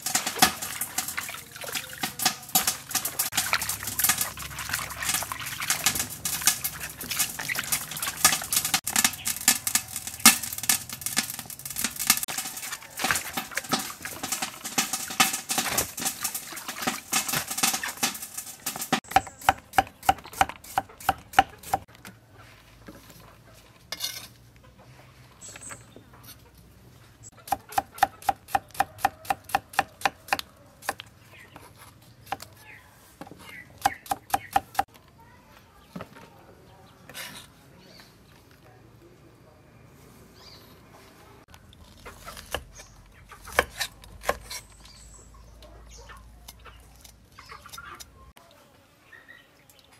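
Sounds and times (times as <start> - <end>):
hands sloshing vegetables in water: 0.0 - 10.2, 11.5 - 21.9
cleaver chopping on wooden block: 19.1 - 21.8.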